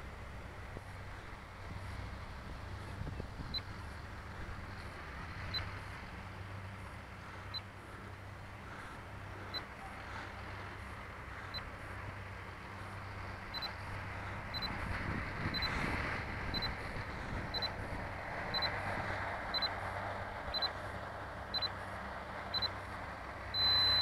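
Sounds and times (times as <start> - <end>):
wind on microphone: 0.0 - 5.8, 13.2 - 20.7
high electronic beeps: 18.5 - 18.8, 20.5 - 20.8, 21.6 - 21.8, 22.5 - 22.8, 23.6 - 24.0.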